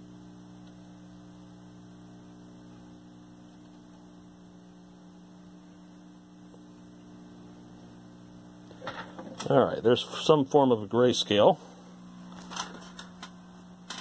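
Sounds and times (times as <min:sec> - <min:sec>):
television low hum: 0:00.0 - 0:14.0.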